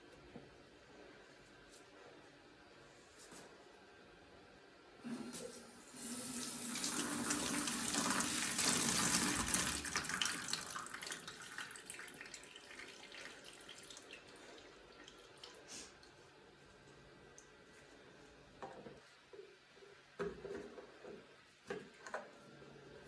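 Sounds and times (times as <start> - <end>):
faucet running: 5.1 - 15.7.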